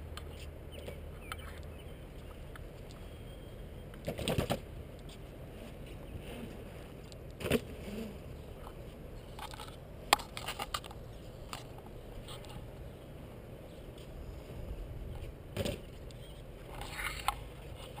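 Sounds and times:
skateboard wheels rolling on concrete: 0:00.0 - 0:18.0
skateboard clicks and scrapes: 0:04.0 - 0:12.7, 0:15.1 - 0:18.0.

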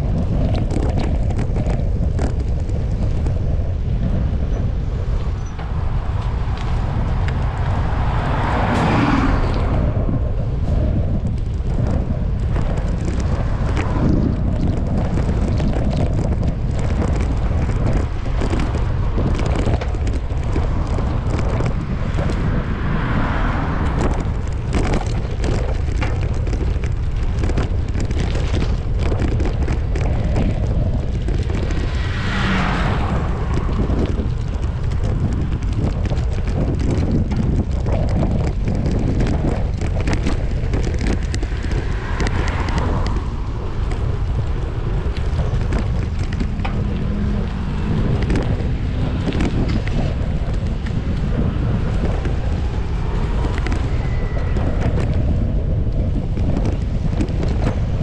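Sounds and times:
wind buffeting microphone: 0:00.0 - 0:58.0
cars swishing past: 0:05.6 - 0:10.3, 0:21.2 - 0:24.7, 0:31.8 - 0:34.8, 0:41.3 - 0:45.0.

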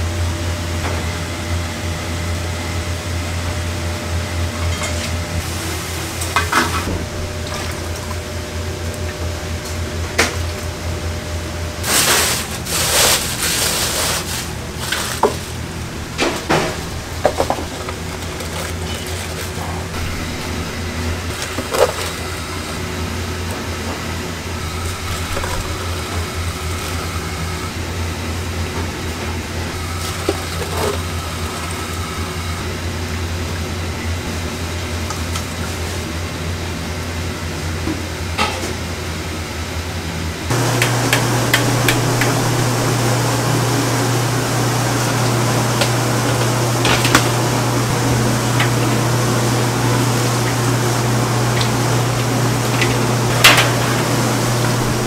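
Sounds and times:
utensils knocking against pots: 0:40.5 - 0:42.9, 0:52.6 - 0:55.0.

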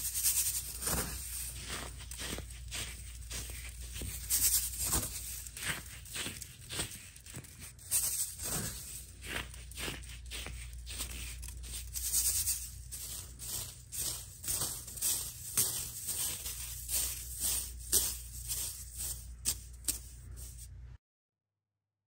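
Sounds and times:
dry crunches of crumbling chunks: 0:00.0 - 0:20.6.

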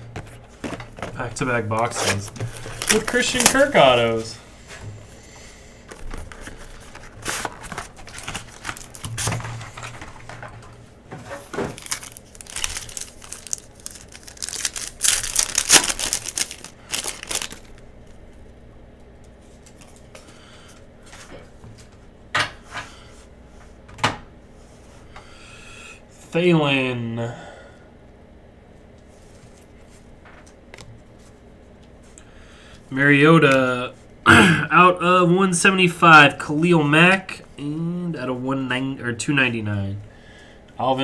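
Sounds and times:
wrapper tearing and crinkling: 0:02.0 - 0:04.0, 0:07.0 - 0:09.3, 0:11.4 - 0:17.8
cards sliding and shuffling: 0:05.9 - 0:10.3.

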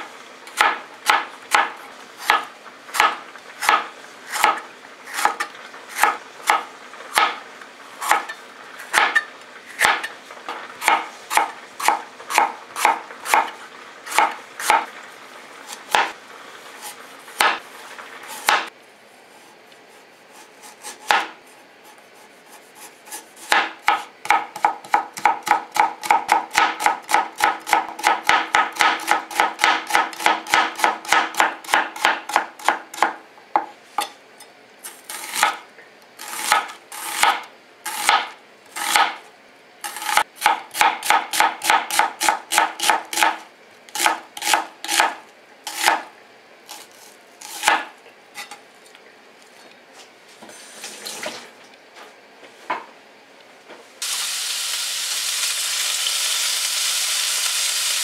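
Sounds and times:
knife chopping on cutting board: 0:00.6 - 0:07.4, 0:08.0 - 0:14.9, 0:15.7 - 0:16.2, 0:16.8 - 0:17.6, 0:18.3 - 0:18.7, 0:20.3 - 0:21.4, 0:22.2 - 0:34.2, 0:35.0 - 0:35.6, 0:36.2 - 0:39.2, 0:39.9 - 0:46.1, 0:46.7 - 0:48.6.

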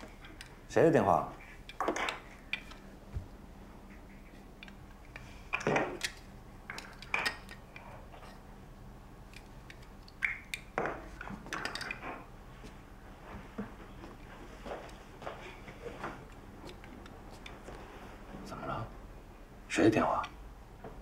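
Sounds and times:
objects knocking and clinking: 0:10.8 - 0:12.2.

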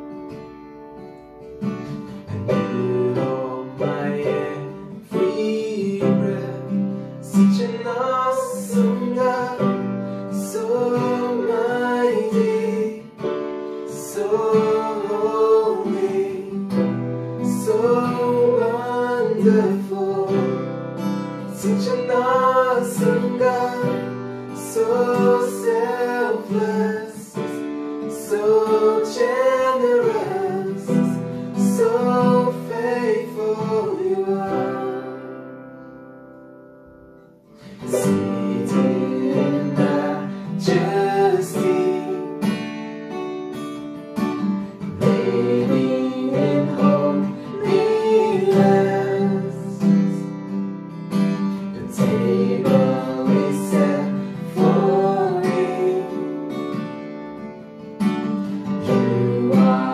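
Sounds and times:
strummed acoustic guitar: 0:00.0 - 0:59.9
women singing together: 0:38.0 - 0:41.8, 0:45.0 - 0:49.6, 0:51.9 - 0:56.2, 0:58.9 - 0:59.9.

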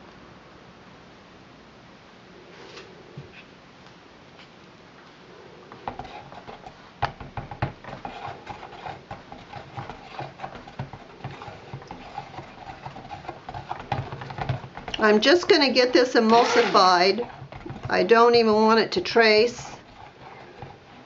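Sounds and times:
stick blender humming: 0:05.7 - 0:21.0.

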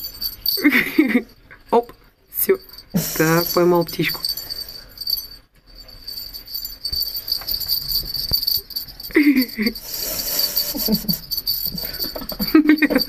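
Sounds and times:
toy jingling and rustling: 0:00.0 - 0:13.0.

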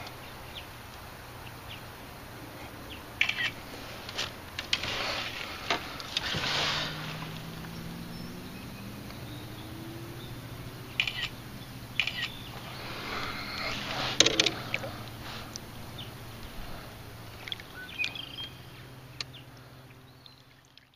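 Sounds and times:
knocks and clicks of gear: 0:10.9 - 0:11.4, 0:13.9 - 0:14.9.

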